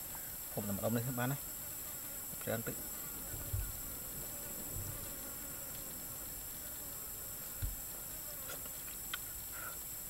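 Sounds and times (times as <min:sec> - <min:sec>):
forest insects droning: 0:00.0 - 0:10.0
soft low thumps: 0:03.2 - 0:05.8.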